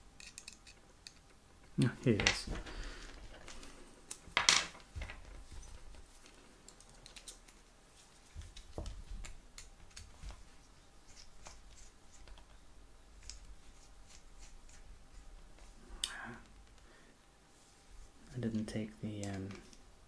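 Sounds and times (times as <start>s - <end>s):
light clicks of small parts: 6.2s - 7.6s.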